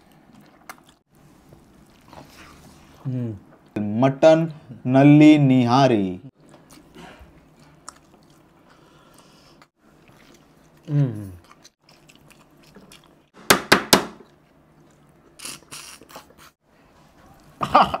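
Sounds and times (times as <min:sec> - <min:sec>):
eating noise: 0:14.9 - 0:16.6.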